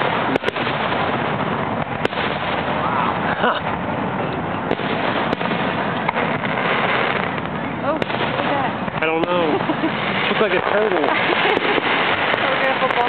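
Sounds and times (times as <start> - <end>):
dense continuous fireworks din: 0.0 - 13.0
firework shell bursts: 4.7 - 13.0.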